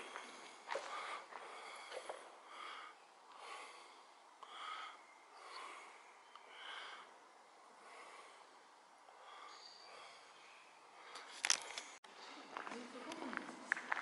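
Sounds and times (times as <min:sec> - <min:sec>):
footsteps on gritty floor: 0:00.0 - 0:02.3, 0:12.4 - 0:14.0
close breathing: 0:00.0 - 0:12.4.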